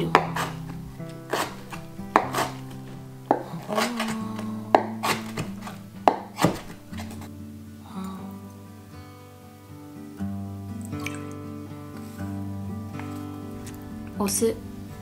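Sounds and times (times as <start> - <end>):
knife chopping on wooden board: 0.0 - 7.3
soft background music: 0.0 - 15.0.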